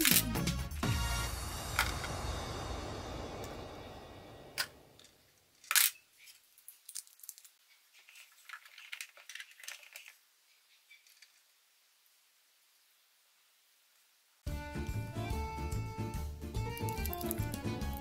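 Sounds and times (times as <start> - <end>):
background music: 0.0 - 4.9, 14.4 - 18.0
plastic toy pieces clicking: 8.4 - 10.2, 16.8 - 18.0.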